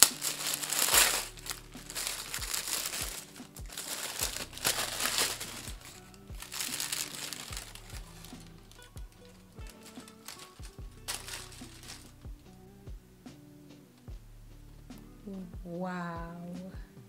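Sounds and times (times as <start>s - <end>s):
tissue paper crinkling and tearing: 0.0s - 12.2s.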